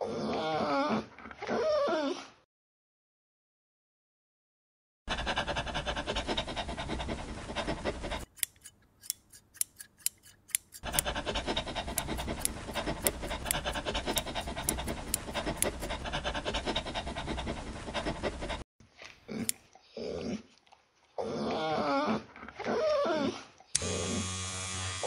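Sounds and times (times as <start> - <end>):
shears snipping hair: 8.2 - 16.0, 19.3 - 19.6.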